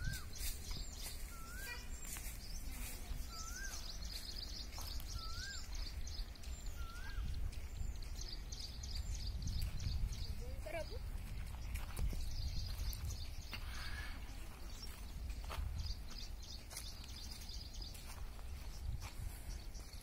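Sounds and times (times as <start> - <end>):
high quick bird chirps: 0.0 - 6.0
rising and falling bird whistle: 6.7 - 7.3.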